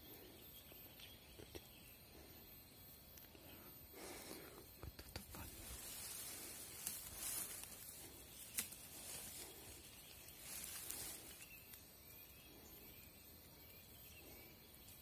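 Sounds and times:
soft rustling: 5.3 - 11.9.

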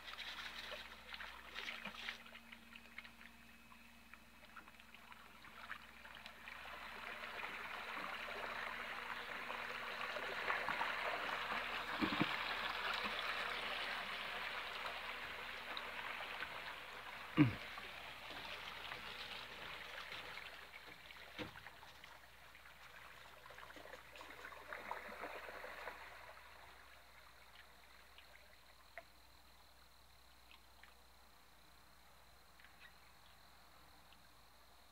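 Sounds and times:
water splashing in boat wake: 0.0 - 31.6.

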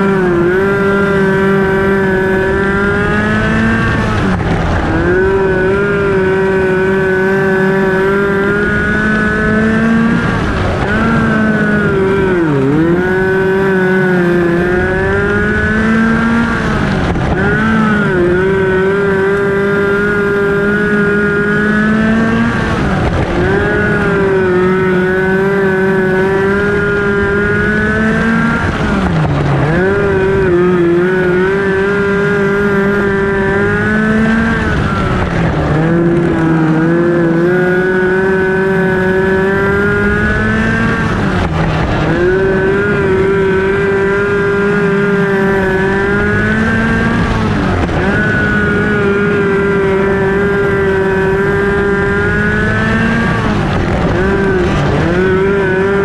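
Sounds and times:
race car engine running hard: 0.0 - 56.0.

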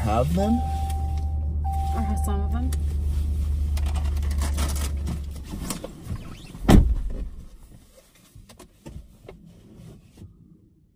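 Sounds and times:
loud thump: 6.1 - 7.5.

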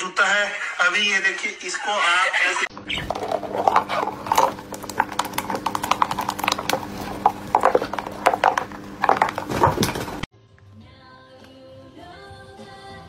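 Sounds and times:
plastic tub scraping on wood: 2.9 - 10.3.

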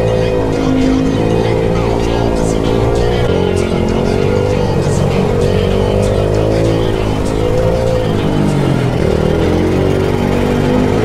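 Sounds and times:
background music with beat: 0.0 - 11.0
small motorcycle engines revving: 0.0 - 11.0.

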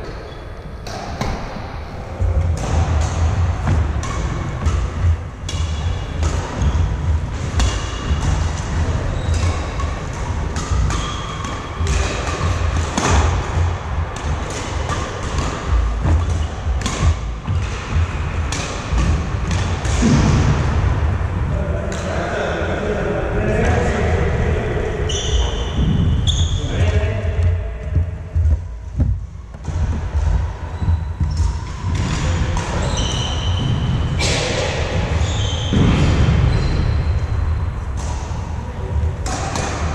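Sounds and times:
rackets hitting shuttlecock: 2.4 - 20.6, 31.2 - 36.2, 39.2 - 39.9
shoe squeaks: 9.0 - 9.8, 25.1 - 26.9, 32.7 - 34.1, 35.2 - 35.8, 36.5 - 37.4
heavy thudding footsteps: 25.7 - 32.6.

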